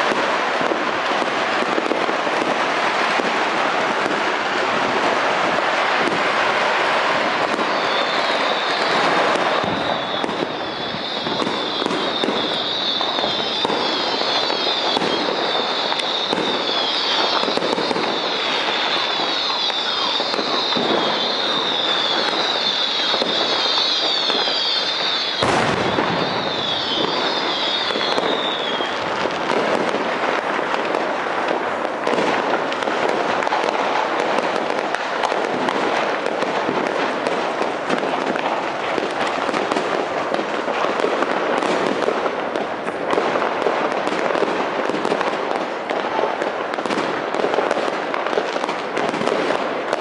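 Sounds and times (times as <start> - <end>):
fireworks crackling and popping: 0.0 - 50.0
sharp bang: 25.4 - 26.4.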